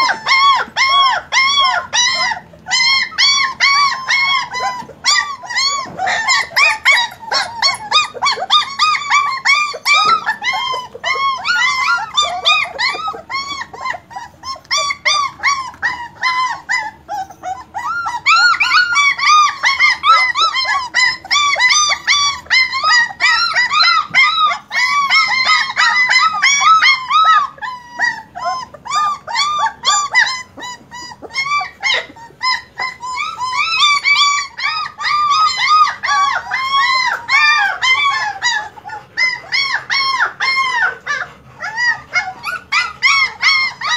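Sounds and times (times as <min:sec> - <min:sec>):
puppies whining: 0:00.0 - 0:43.9.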